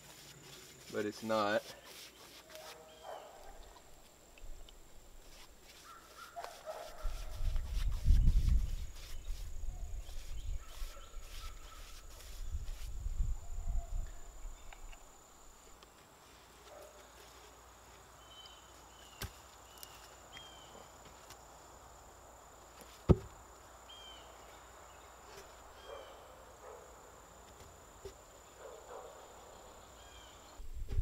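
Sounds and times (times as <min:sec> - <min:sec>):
post knocking into hole: 0:23.1 - 0:23.3
wooden post bumping: 0:23.1 - 0:23.4.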